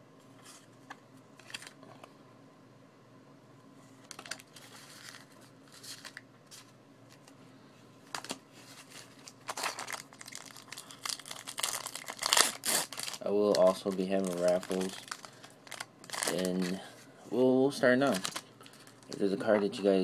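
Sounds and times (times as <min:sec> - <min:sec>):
foil pack crinkling: 0:04.1 - 0:07.3, 0:08.1 - 0:16.9, 0:18.0 - 0:19.2.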